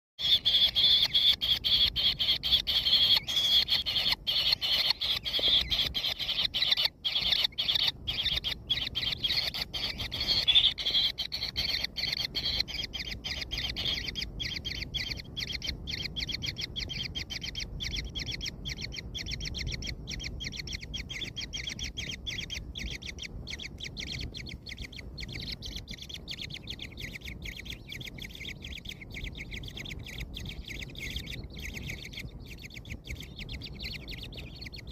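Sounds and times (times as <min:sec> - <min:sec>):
nestlings chirping: 0:00.2 - 0:34.9.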